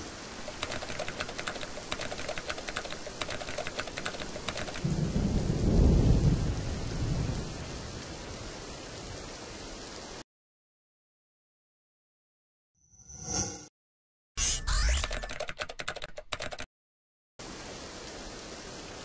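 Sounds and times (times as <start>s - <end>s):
rain: 0.0s - 10.2s, 17.4s - 19.0s
keyboard typing clicks: 0.4s - 4.8s, 14.7s - 16.7s
thunder rumble: 4.8s - 8.6s.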